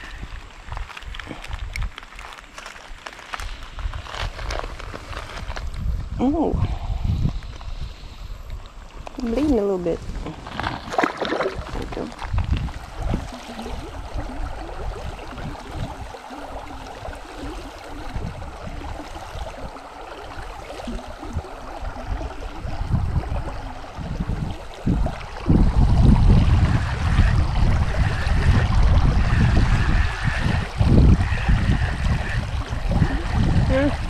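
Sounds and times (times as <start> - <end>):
creek water running over rocks: 0.0 - 34.0
wind buffeting microphone: 3.4 - 34.0.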